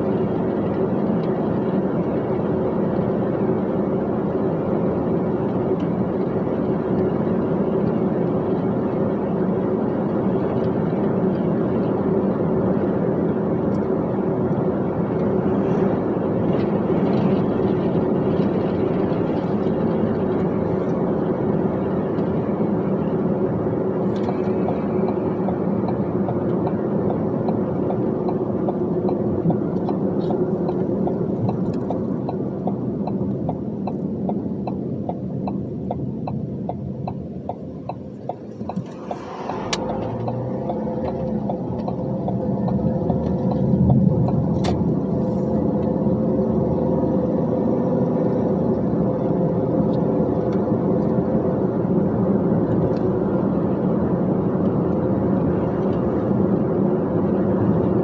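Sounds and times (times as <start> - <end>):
road noise: 0.0 - 58.0
truck engine running: 0.0 - 58.0
even ticking: 24.2 - 44.8.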